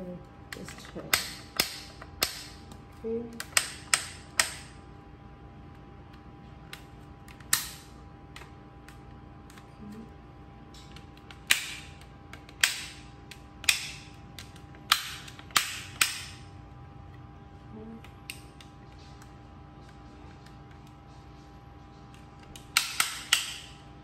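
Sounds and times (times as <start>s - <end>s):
plastic figure snaps and clicks: 0.5s - 4.7s, 6.7s - 9.6s, 10.7s - 16.4s, 22.1s - 23.8s.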